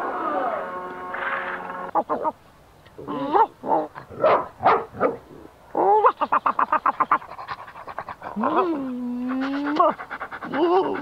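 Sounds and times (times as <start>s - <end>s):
cartoon dog panting: 6.8s - 11.0s
cartoon dog whining: 8.4s - 11.0s.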